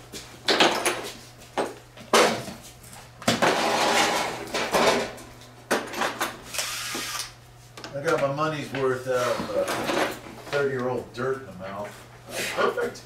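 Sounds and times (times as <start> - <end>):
metal tools clanking and rattling: 9.4 - 10.3.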